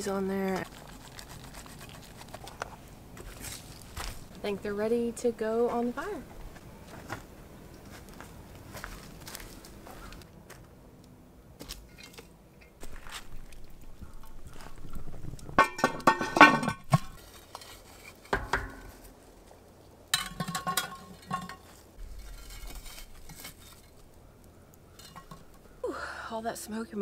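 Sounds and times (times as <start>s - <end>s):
metal pot and lid clinking: 15.6s - 17.7s, 20.1s - 21.8s, 25.0s - 25.6s.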